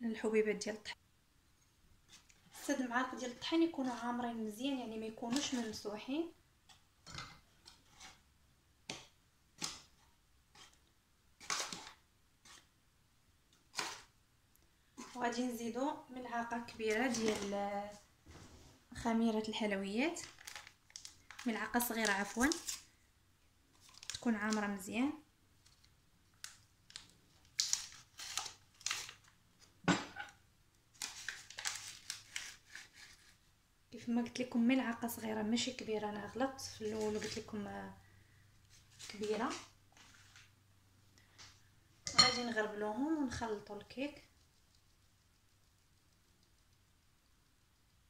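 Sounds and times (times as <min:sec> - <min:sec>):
spoon scraping flour: 0:02.1 - 0:06.0, 0:07.4 - 0:08.3, 0:08.9 - 0:12.8, 0:13.7 - 0:14.1, 0:14.9 - 0:15.5, 0:16.5 - 0:18.6
kitchen utensils rustling: 0:42.0 - 0:42.6.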